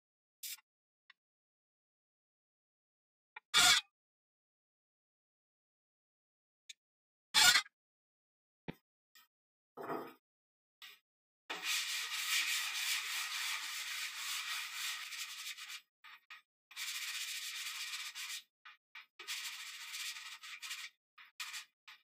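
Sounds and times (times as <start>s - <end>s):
sanding block rubbing wood: 11.5s - 16.2s, 16.8s - 18.5s, 19.2s - 21.8s.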